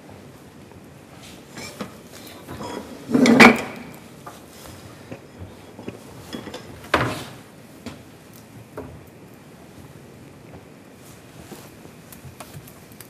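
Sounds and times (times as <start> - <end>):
metal pots clattering: 1.5 - 4.0, 5.2 - 7.4.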